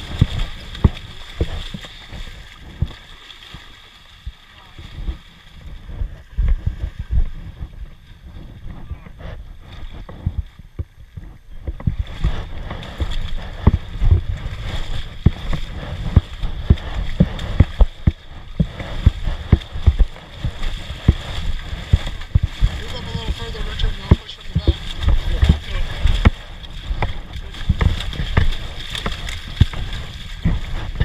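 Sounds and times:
sharp knocks and thumps: 0.0s - 3.0s, 8.6s - 31.0s
water sloshing around boots: 0.0s - 31.0s
low rumble: 4.2s - 31.0s.

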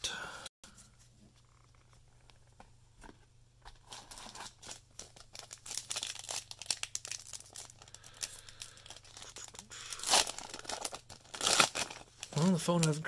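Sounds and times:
foil wrapper crinkling and tearing: 3.8s - 13.0s.

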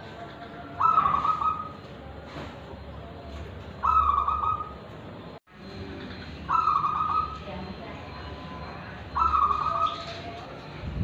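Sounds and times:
dove cooing: 0.0s - 1.8s, 3.8s - 4.8s, 6.1s - 7.5s, 9.1s - 10.4s.

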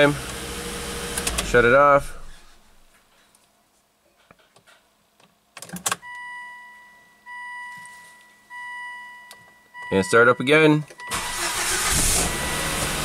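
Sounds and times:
car warning chime beeps: 6.0s - 13.0s.

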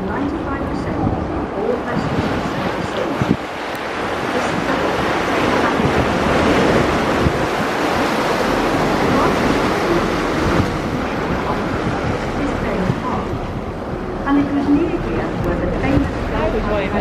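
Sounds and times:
water rushing past ferry: 0.0s - 17.0s
wind blowing over microphone: 0.0s - 17.0s.

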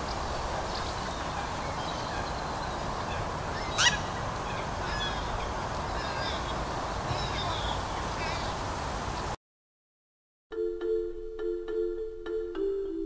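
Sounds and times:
outdoor background hiss: 0.0s - 9.4s
small birds chirping: 0.0s - 9.4s
waterbird call: 0.0s - 9.4s.

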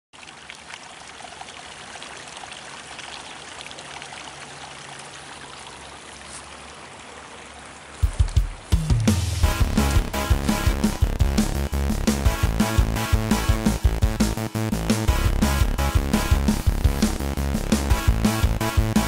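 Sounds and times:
stream water rushing: 0.2s - 11.7s
music with low thumps: 8.0s - 19.0s.

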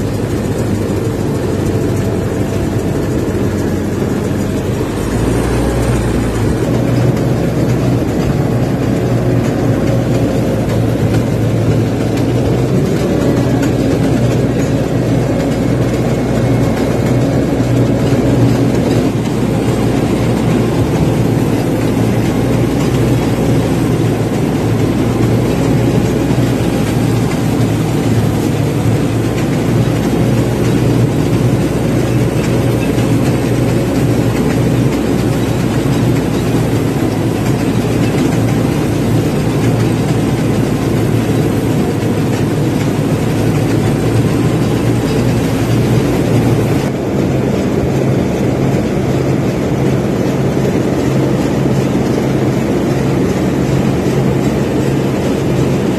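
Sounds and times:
combine harvester droning: 0.0s - 55.9s.

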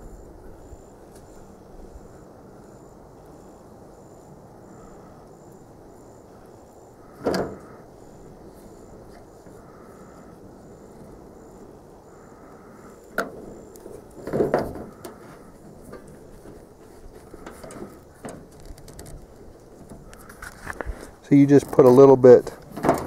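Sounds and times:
bumping and rubbing: 13.3s - 23.0s.

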